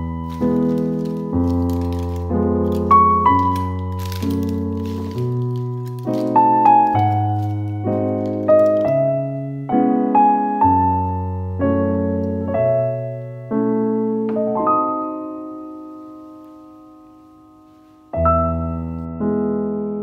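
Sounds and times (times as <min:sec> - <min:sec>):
slow solo piano chords: 0:00.0 - 0:20.0.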